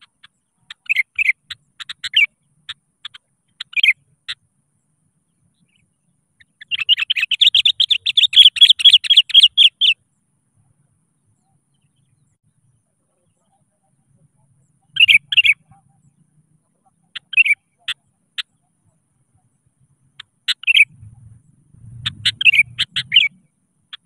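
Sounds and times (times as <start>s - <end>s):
bird chattering: 0.0s - 4.4s, 5.5s - 10.0s, 13.1s - 21.1s, 22.0s - 24.0s
bird chirping: 0.0s - 24.0s.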